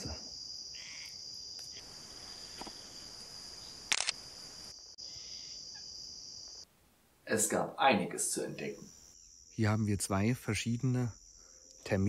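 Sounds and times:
high-pitched insect drone: 0.3 - 6.6
sharp crackle: 3.8 - 4.3.

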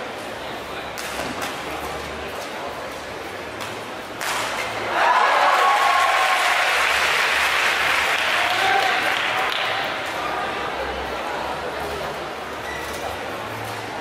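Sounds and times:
racket hitting shuttlecock: 3.6 - 4.8
crowd applause and cheering: 4.9 - 9.9.

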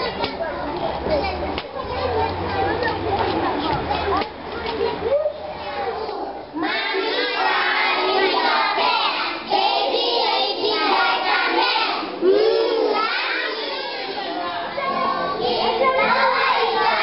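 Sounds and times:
children singing in unison: 6.6 - 17.0.

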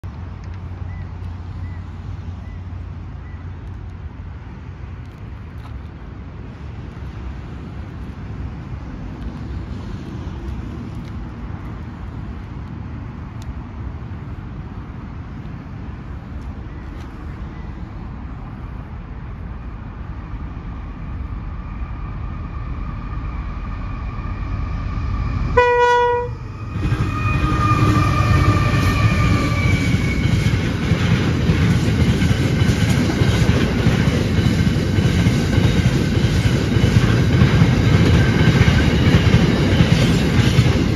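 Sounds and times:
freight train rumble: 0.0 - 40.9
train horn blast: 25.5 - 30.2.

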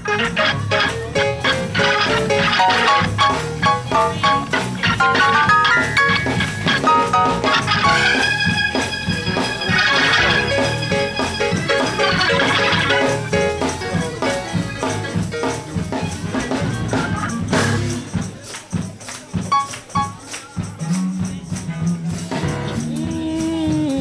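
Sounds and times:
church praise music: 0.0 - 23.9
tambourine beat: 0.0 - 24.0.

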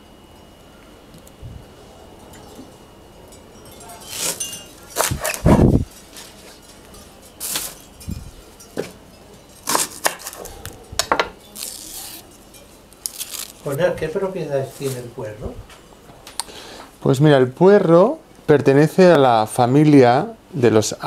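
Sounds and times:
utensils clinking: 2.2 - 13.9.

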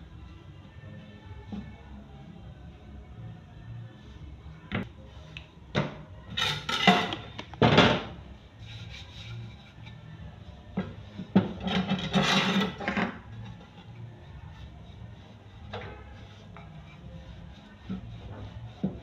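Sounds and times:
rolling pin rubbing on dough: 8.4 - 19.0.

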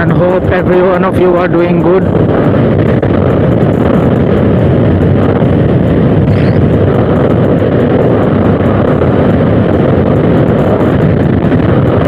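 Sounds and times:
scooter running: 0.0 - 12.0
wind rushing over microphone: 0.0 - 12.0.

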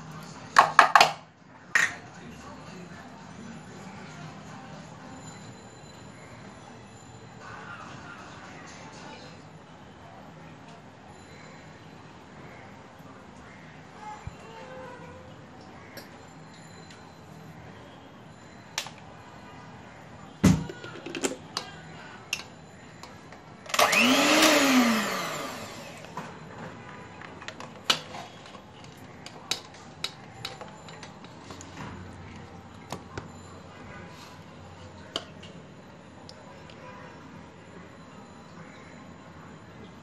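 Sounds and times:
electric hand mixer whirring: 23.7 - 26.2
clicks and knocks of handling: 26.1 - 33.3.

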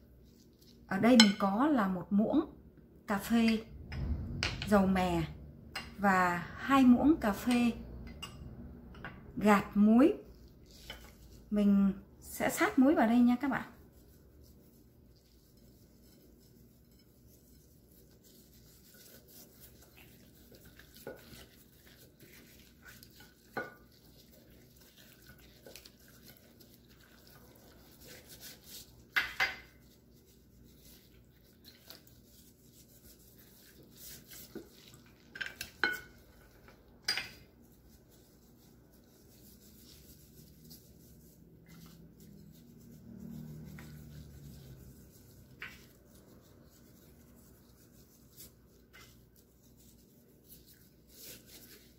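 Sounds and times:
hands rubbing salt on chicken: 10.4 - 36.8, 37.4 - 51.9.

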